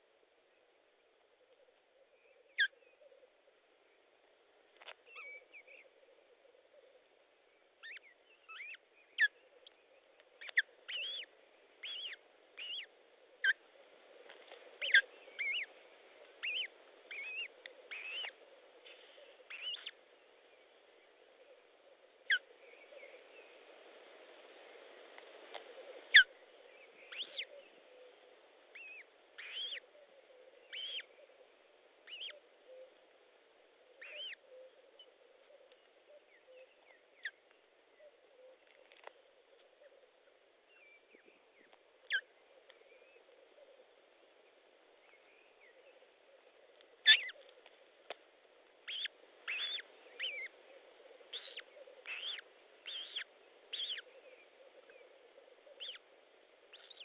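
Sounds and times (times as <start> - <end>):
osprey chirping calls: 7.8 - 9.8, 10.4 - 13.6, 14.8 - 15.7, 16.4 - 18.4, 19.4 - 20.0, 26.1 - 27.6, 28.7 - 29.9, 30.7 - 31.1, 32.0 - 32.9, 34.0 - 34.7, 47.0 - 47.5, 48.8 - 56.1, 56.7 - 57.0.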